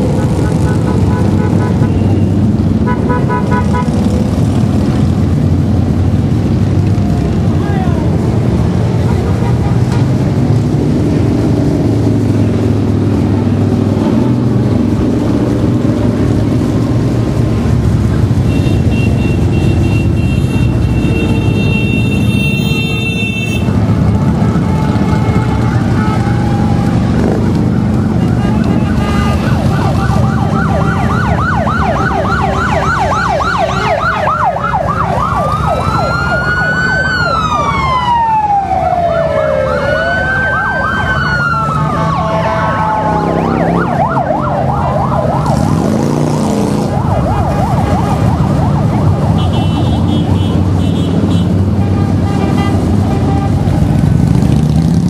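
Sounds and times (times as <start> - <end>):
siren yelping and wailing: 28.6 - 50.6
motorcycles rumbling past: 42.8 - 49.4, 53.6 - 55.0.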